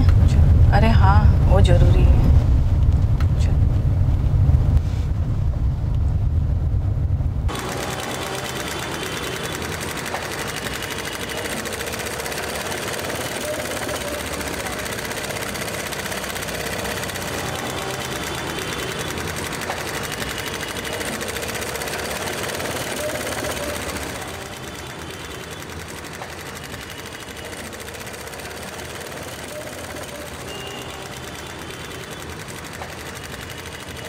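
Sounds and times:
sewing machine stitching: 7.5s - 34.0s.

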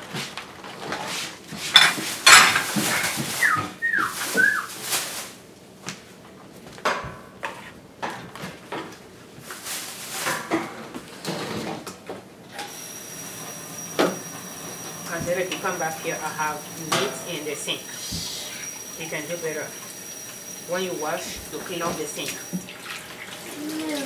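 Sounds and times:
dishes and utensils knocking: 1.7s - 3.3s
steady hiss with high whine: 12.6s - 22.6s.

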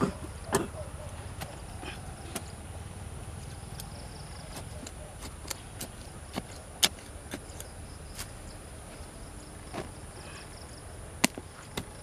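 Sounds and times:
steady high hiss: 0.0s - 12.0s
digging blade scraping soil: 3.8s - 9.0s.

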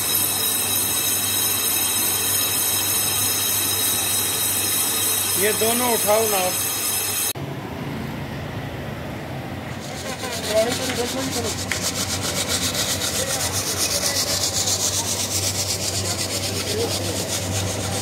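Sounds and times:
rhythmic rasping scrape on metal: 0.0s - 7.4s, 9.7s - 18.0s
faint voices: 13.0s - 18.0s.

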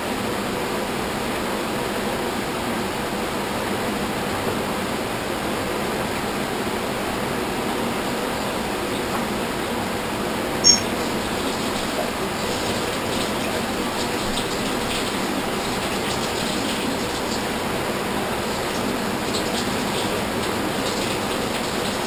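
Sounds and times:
steady hiss: 0.0s - 22.0s
short high-pitched blip: 10.6s - 10.9s.

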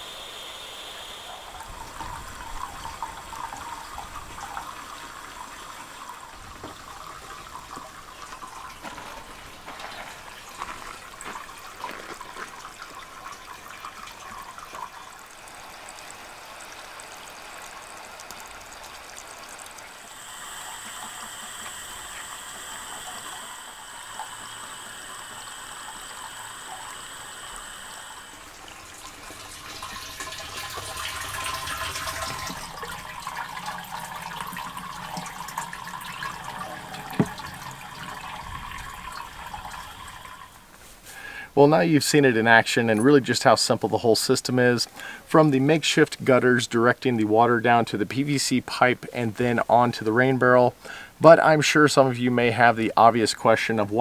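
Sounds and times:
steady high tone: 0.0s - 3.6s
water pouring into pipe: 0.0s - 54.0s
water trickling off a metal roof: 0.0s - 54.0s.

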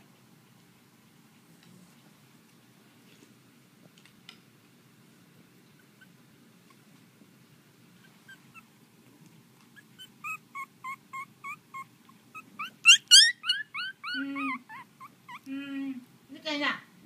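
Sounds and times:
puppy squeaking and whimpering: 5.8s - 6.2s, 8.0s - 8.7s, 9.7s - 15.5s
puppy yelping: 8.0s - 8.7s, 9.7s - 15.5s.

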